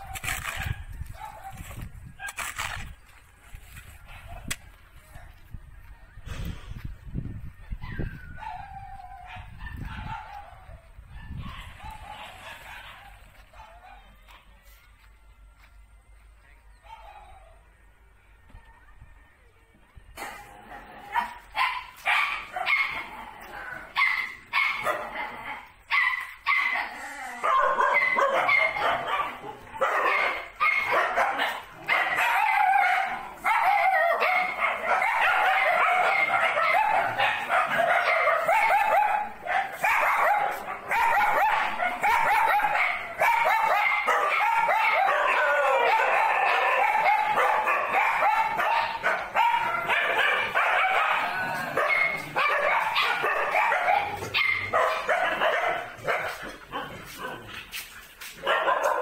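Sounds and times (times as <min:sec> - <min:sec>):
dogs barking: 0:00.0 - 0:02.7, 0:07.8 - 0:14.5, 0:16.8 - 0:17.6, 0:20.2 - 0:59.0.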